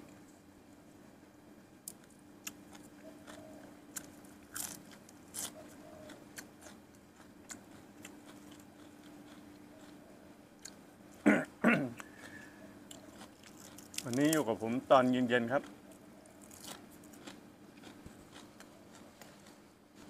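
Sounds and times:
faint steady hum: 0:00.0 - 0:20.0
person crunching raw vegetables: 0:01.8 - 0:10.0, 0:11.9 - 0:14.7, 0:15.3 - 0:20.0.

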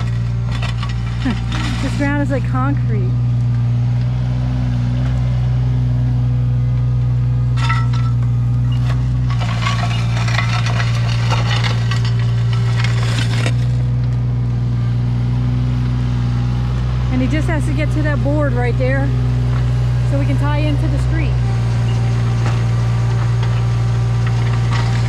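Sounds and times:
bucket scraping and crunching ground: 0:00.0 - 0:03.1, 0:07.5 - 0:14.2, 0:20.1 - 0:25.0
diesel engine running under load: 0:00.0 - 0:25.0.

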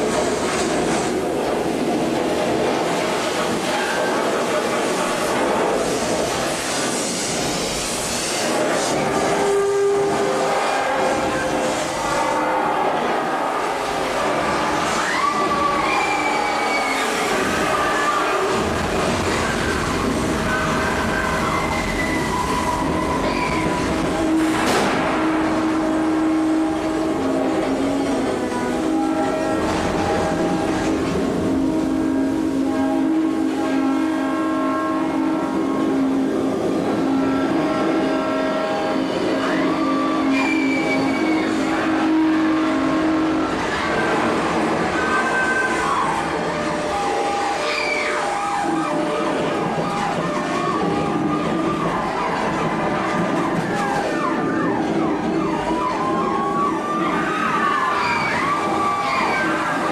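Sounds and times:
continuous rumbling: 0:00.0 - 0:59.9
emergency vehicle sirens: 0:10.1 - 0:31.0, 0:38.2 - 0:59.9.

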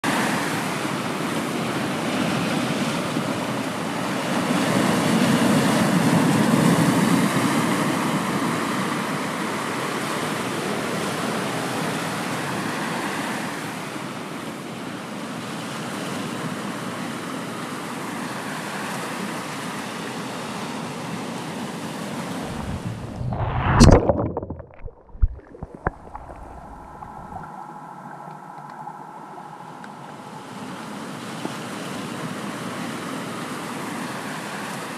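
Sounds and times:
sea water rushing: 0:22.2 - 0:34.9
loud splash: 0:22.4 - 0:30.8.

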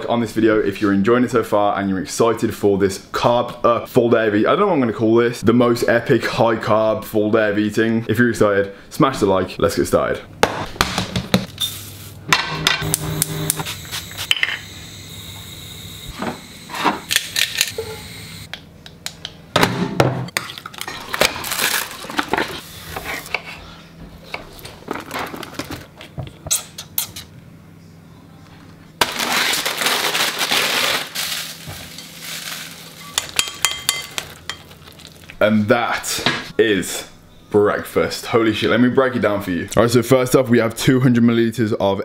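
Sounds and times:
spoon stirring in glass bowl: 0:33.2 - 0:34.7.

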